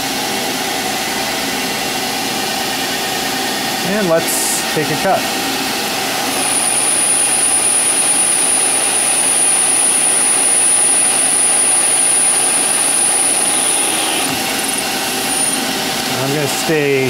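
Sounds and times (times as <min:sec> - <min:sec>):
high steady whine: 0:00.0 - 0:17.0
metal lathe cutting: 0:00.0 - 0:17.0.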